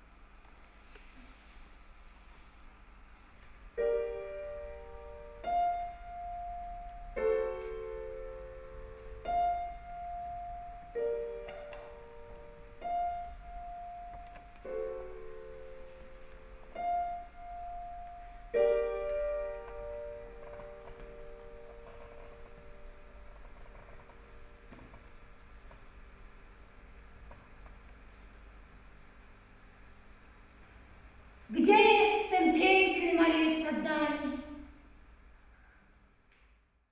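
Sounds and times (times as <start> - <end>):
slow piano figure: 3.4 - 28.7.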